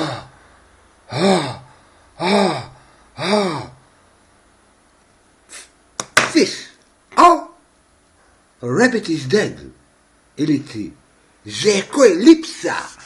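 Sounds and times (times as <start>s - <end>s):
man moaning ahh: 0.0s - 3.9s.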